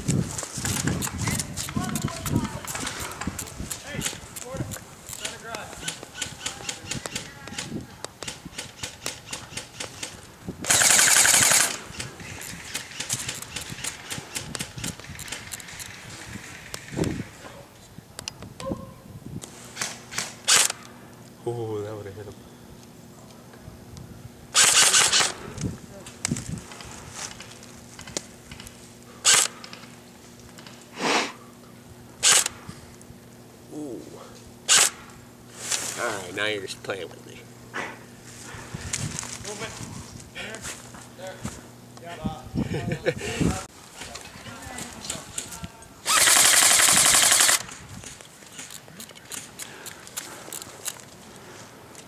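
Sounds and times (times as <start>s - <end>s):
airsoft rifle shots: 0.7s - 16.0s, 19.8s - 20.8s, 24.5s - 25.4s, 29.2s - 29.6s, 32.2s - 32.6s, 34.7s - 35.1s, 46.0s - 47.7s
airsoft rifle full-auto burst: 10.7s - 12.1s, 20.1s - 20.8s, 24.5s - 25.4s, 29.2s - 29.6s, 32.2s - 32.5s, 34.7s - 35.0s, 46.0s - 47.7s.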